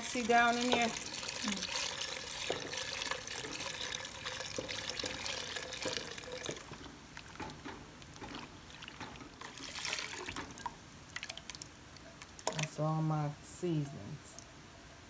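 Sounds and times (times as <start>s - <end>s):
whisk stirring thick filling: 0.0s - 11.7s
liquid pouring into pot: 0.0s - 12.7s.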